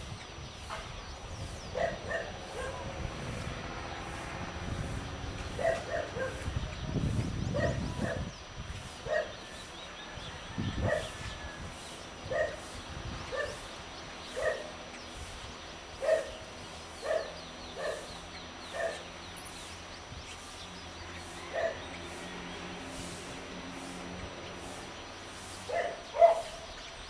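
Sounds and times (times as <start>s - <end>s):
distant dog barking: 1.7s - 3.0s, 5.6s - 6.5s, 7.5s - 8.3s, 9.0s - 9.4s, 10.8s - 11.2s, 12.3s - 12.6s, 13.3s - 13.7s, 14.3s - 14.8s, 16.0s - 16.4s, 17.0s - 19.1s, 21.5s - 21.9s, 25.7s - 26.7s.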